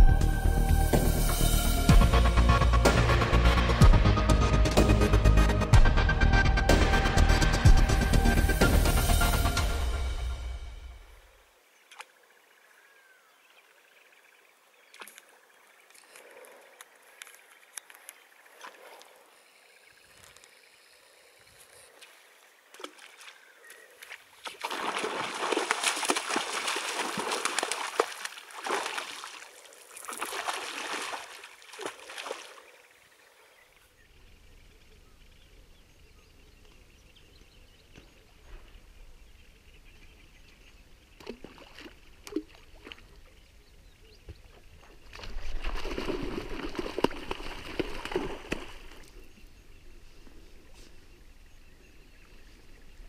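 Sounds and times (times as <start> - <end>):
water splashing from rod strokes: 24.4 - 32.6.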